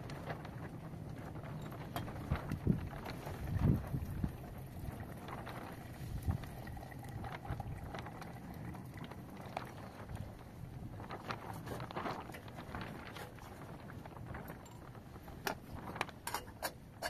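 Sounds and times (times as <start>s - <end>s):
tea pouring into a glass: 3.2s - 10.4s.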